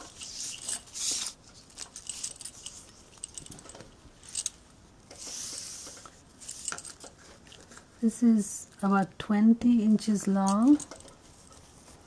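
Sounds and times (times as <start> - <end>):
metal bangles jingling: 0.0 - 4.6, 6.3 - 7.2.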